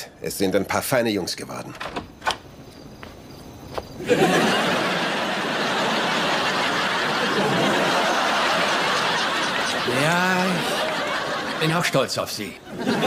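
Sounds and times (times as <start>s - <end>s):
studio audience laughing: 4.0s - 13.0s.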